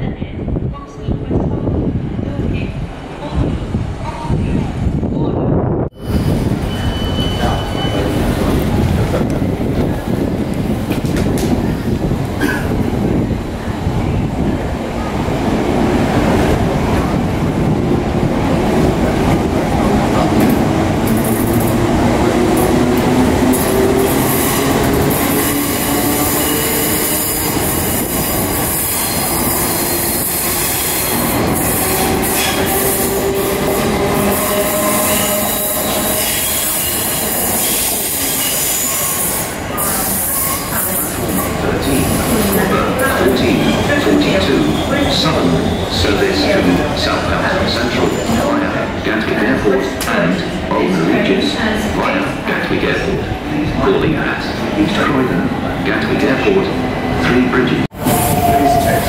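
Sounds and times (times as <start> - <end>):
wheels rumbling on rail: 0.1 - 59.0
high wheel squeal: 6.0 - 8.2.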